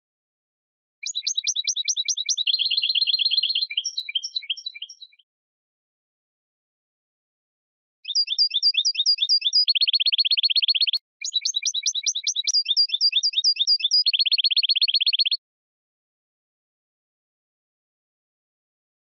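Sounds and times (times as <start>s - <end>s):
goldfinch singing: 1.0s - 5.2s, 8.0s - 15.4s.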